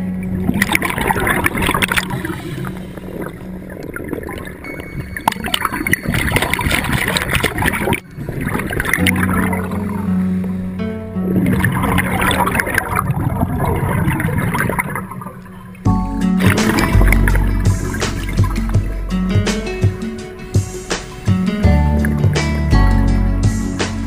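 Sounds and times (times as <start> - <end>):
underwater exhaled bubbles gurgling: 0.0 - 19.0
steady low tone: 0.0 - 24.0.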